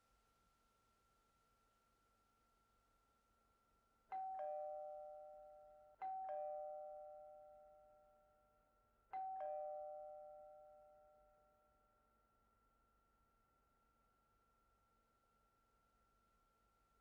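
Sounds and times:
two-tone doorbell chime: 0:04.1 - 0:08.5, 0:09.1 - 0:11.6.

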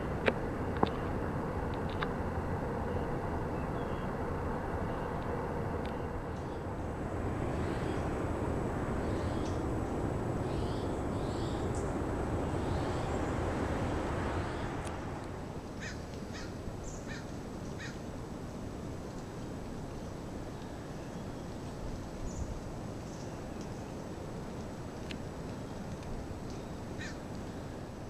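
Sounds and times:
steady rushing background: 0:04.1 - 0:16.8
harsh crow-like calls: 0:15.8 - 0:18.0, 0:27.0 - 0:27.2.

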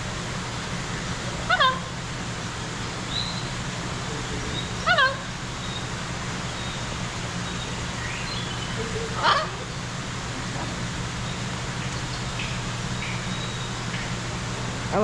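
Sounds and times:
steady low hum: 0:00.0 - 0:15.0
parrot raspy call: 0:01.4 - 0:01.9, 0:04.6 - 0:05.3, 0:08.8 - 0:09.7.

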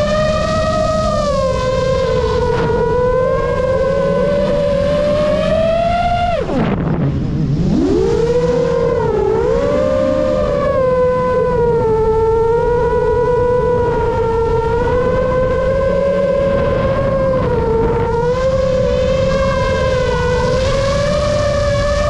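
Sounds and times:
quadcopter motors whining: 0:00.0 - 0:22.0.

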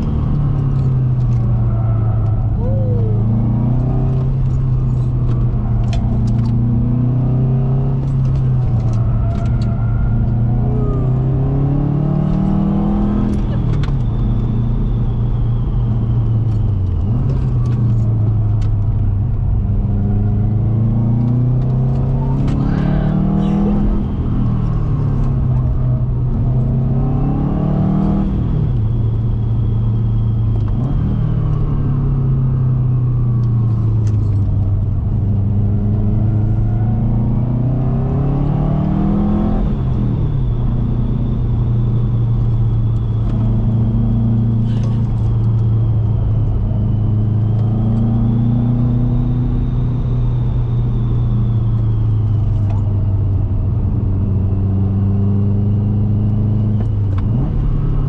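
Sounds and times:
car engine revving under hard driving: 0:00.0 - 0:58.0.

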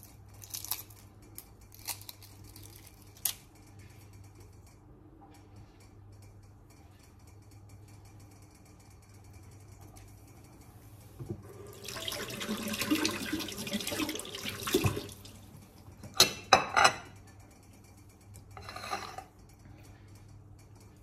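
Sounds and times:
tap water running: 0:11.3 - 0:15.6.

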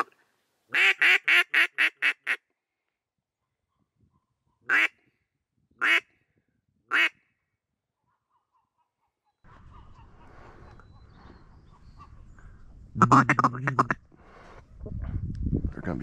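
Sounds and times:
duck call quacking: 0:00.7 - 0:02.4, 0:04.7 - 0:05.0, 0:05.8 - 0:06.0, 0:06.9 - 0:07.1, 0:13.0 - 0:14.0.

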